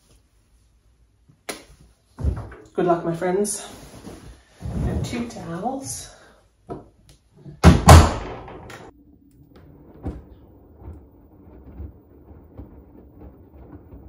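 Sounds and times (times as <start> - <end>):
washing machine door slamming: 7.6 - 8.9
faint low rumble: 8.9 - 14.0.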